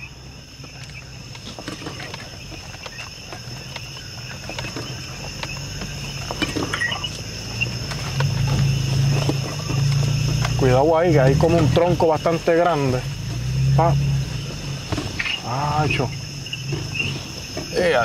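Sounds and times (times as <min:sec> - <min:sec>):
night insects chorus: 0:00.0 - 0:18.0
truck engine hum: 0:00.0 - 0:18.0
knocks and rattles: 0:00.6 - 0:12.2.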